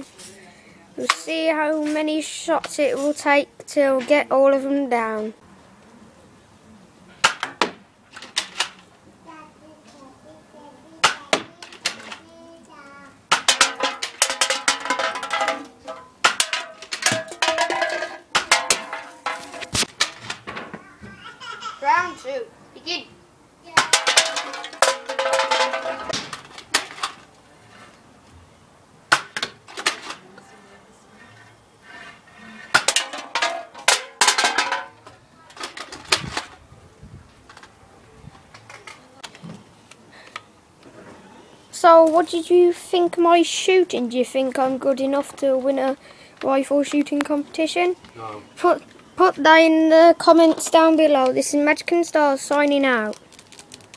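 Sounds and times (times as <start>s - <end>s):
shots striking metal cans: 7.2s - 8.8s, 13.3s - 20.6s, 23.8s - 27.2s, 29.1s - 30.2s, 32.7s - 36.5s
cans ringing: 13.3s - 19.7s, 23.8s - 26.2s.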